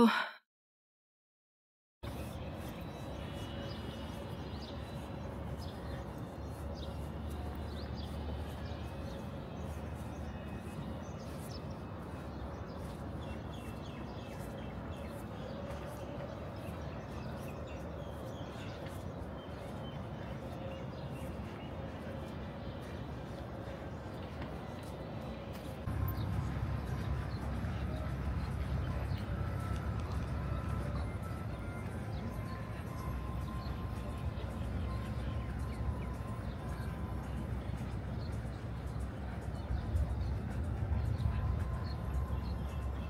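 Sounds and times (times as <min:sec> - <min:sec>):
small birds chirping: 0:02.1 - 0:43.0
steady low rumble: 0:25.7 - 0:43.0.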